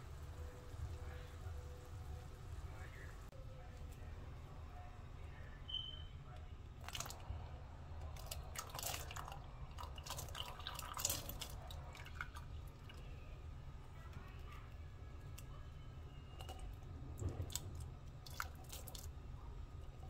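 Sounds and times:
low steady hum: 0.0s - 20.0s
liquid pouring and splashing: 6.8s - 7.4s, 8.0s - 13.2s, 16.4s - 20.0s.

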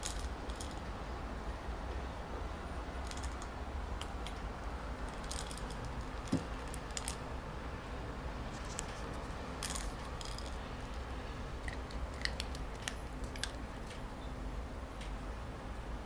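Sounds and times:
low room hum: 0.0s - 16.0s
light clicks of dog toys: 3.0s - 7.2s, 8.6s - 14.1s.

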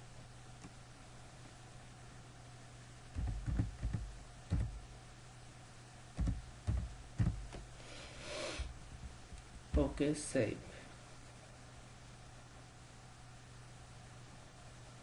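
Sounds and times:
low steady hum: 0.0s - 15.0s
keyboard keystrokes: 3.2s - 4.8s, 6.2s - 7.6s.

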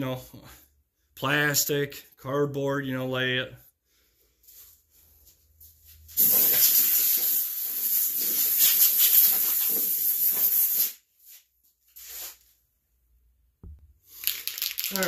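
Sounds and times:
air blow gun hissing: 6.2s - 11.0s.

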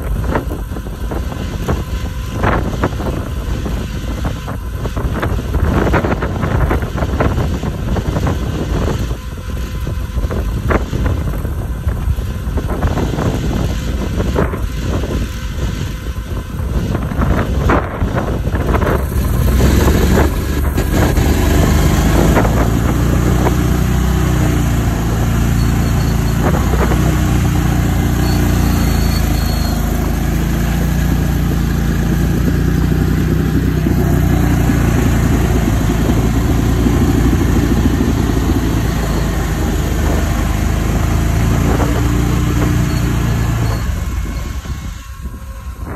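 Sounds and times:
atv engine running under load: 0.0s - 45.9s.

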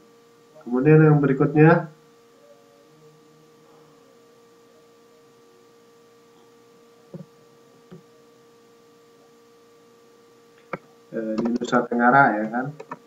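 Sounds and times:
faint electrical hum: 0.0s - 13.0s.

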